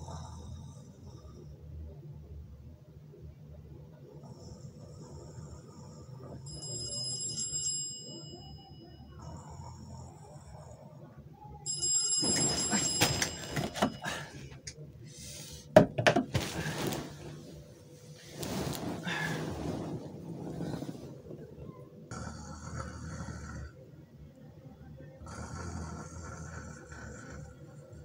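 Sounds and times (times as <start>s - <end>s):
blankets rustling: 16.3s - 21.8s.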